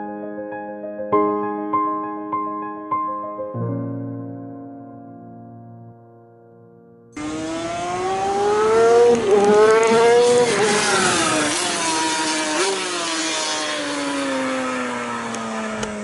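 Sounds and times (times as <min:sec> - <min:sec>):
racing motorcycle at high revs: 0:07.2 - 0:16.0.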